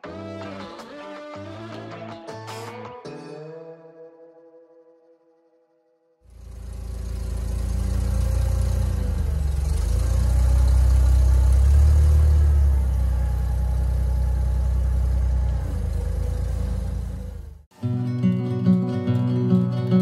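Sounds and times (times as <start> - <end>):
forklift engine running: 6.3 - 17.7.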